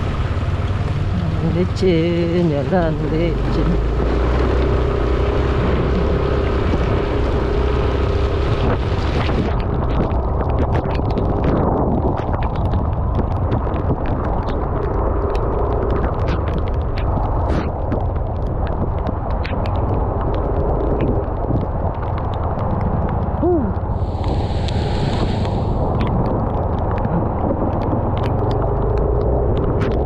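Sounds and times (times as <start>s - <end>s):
wind buffeting the microphone: 0.8s - 30.0s
knocks and clicks on gravel: 9.4s - 23.3s.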